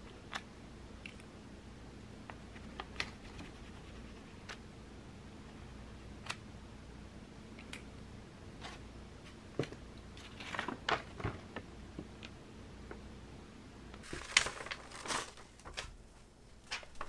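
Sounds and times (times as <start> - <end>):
paper pattern rustling: 14.0 - 17.0.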